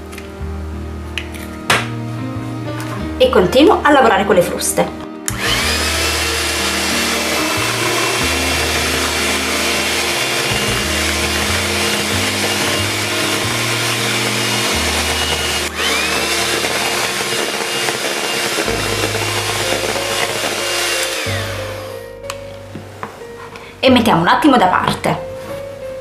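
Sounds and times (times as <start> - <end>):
electric hand mixer whirring: 5.3 - 22.1.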